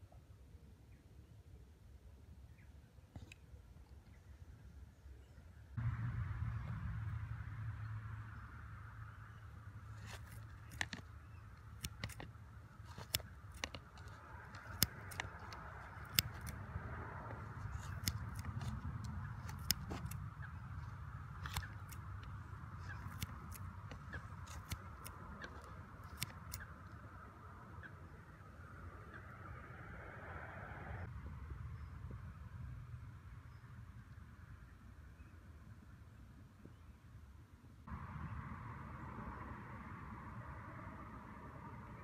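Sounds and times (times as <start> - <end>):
bait shears clicking: 9.9 - 27.1.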